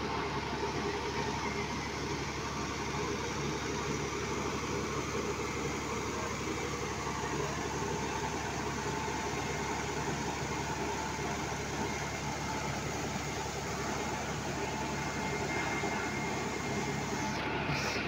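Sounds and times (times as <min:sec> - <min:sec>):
engine droning: 0:00.0 - 0:18.0
faint whine: 0:00.0 - 0:18.0.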